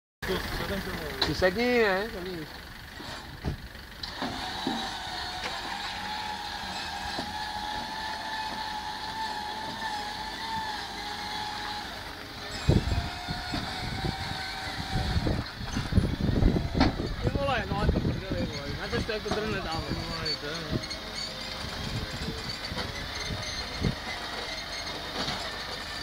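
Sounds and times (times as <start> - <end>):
winch whining: 2.5 - 26.0
knocks and clunks: 3.1 - 5.7, 15.6 - 17.4.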